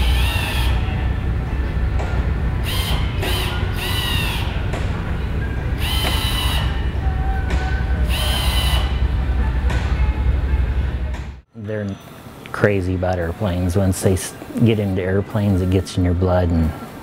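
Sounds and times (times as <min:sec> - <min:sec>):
low hum of maintenance work: 0:00.0 - 0:17.0.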